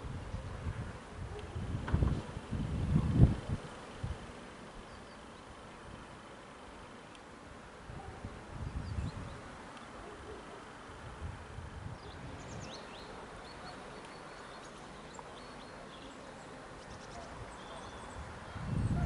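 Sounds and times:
wind buffeting microphone: 0:00.0 - 0:04.9, 0:07.8 - 0:09.6, 0:11.0 - 0:13.1, 0:17.1 - 0:19.0
steady hiss: 0:00.0 - 0:19.0.

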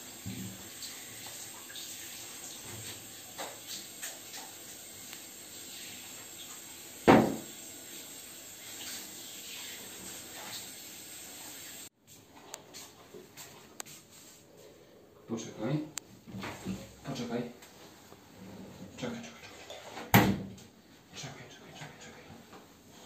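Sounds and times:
shower spraying water: 0:00.0 - 0:11.9
loud thump: 0:07.1 - 0:07.4.

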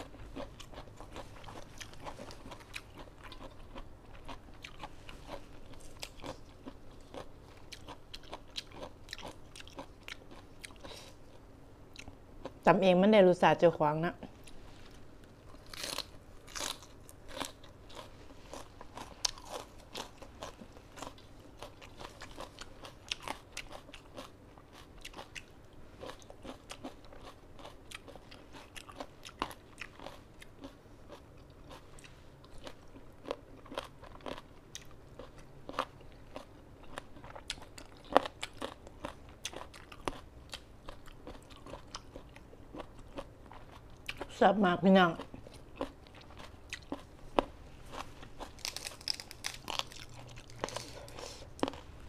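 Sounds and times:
person chewing crunchy vegetables: 0:00.0 - 0:12.6, 0:14.3 - 0:44.4, 0:45.1 - 0:52.0.

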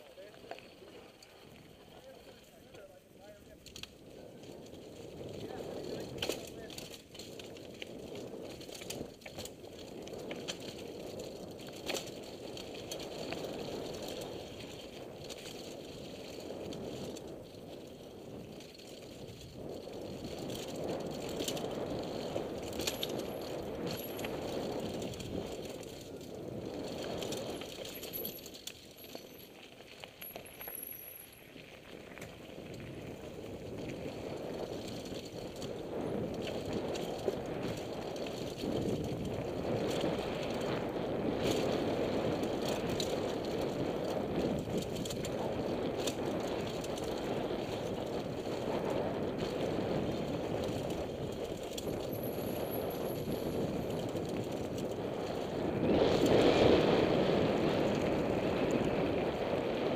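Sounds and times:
bike chain and frame rattling: 0:00.0 - 0:59.9
bike tyres on dirt and leaves: 0:00.0 - 0:59.9.

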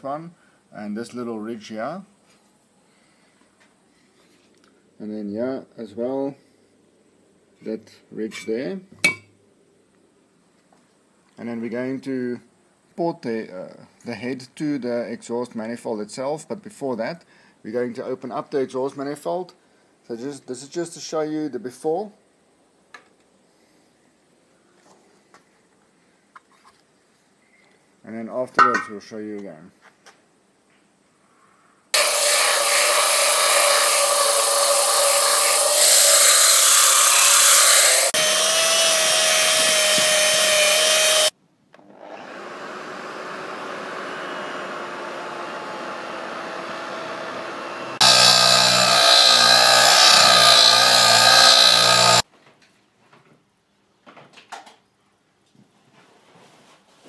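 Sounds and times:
rotary tool grinding whine: 0:32.0 - 0:52.2.

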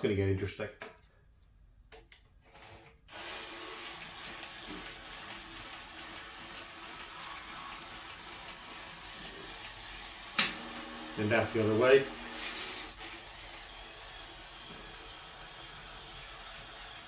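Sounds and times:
toy robot motor and gears running: 0:03.1 - 0:10.4, 0:11.2 - 0:17.0.

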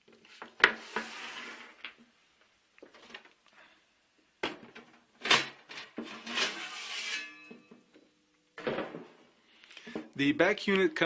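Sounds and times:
sheet metal scraping: 0:00.7 - 0:01.8, 0:05.9 - 0:07.7.

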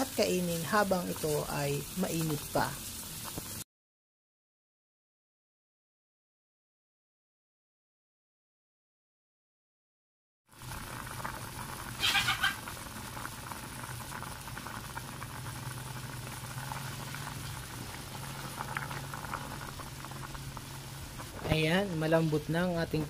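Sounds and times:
soup bubbling with small pops: 0:03.2 - 0:03.6, 0:10.5 - 0:22.2.

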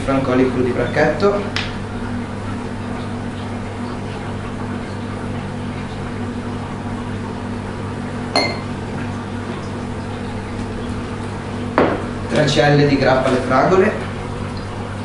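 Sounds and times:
low electrical hum: 0:00.0 - 0:15.0
bottle clinking against glass: 0:08.4 - 0:08.7.

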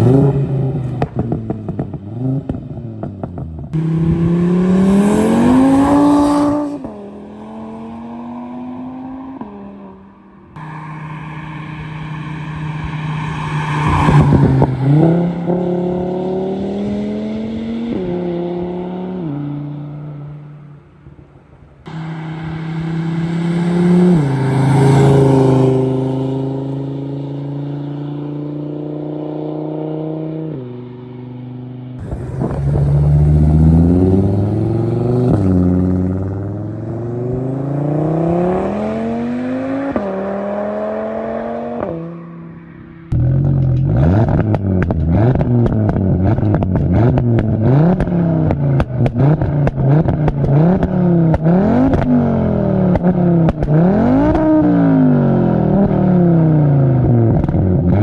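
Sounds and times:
car engine accelerating: 0:00.0 - 0:20.4, 0:21.8 - 0:58.0
exhaust crackling: 0:32.0 - 0:38.8.

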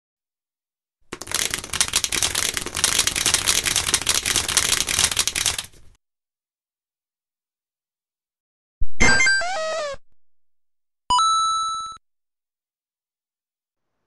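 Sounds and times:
rapid clicking and clattering: 0:01.1 - 0:06.0.

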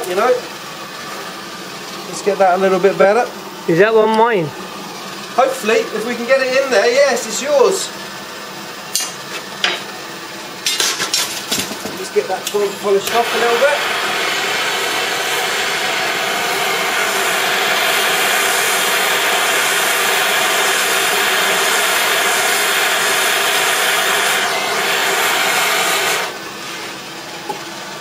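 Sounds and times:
gas torch hissing: 0:10.6 - 0:27.0.

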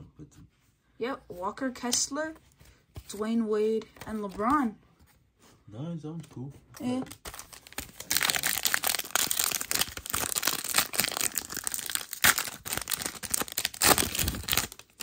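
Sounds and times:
plastic wrapper crinkling and tearing: 0:07.1 - 0:15.0.

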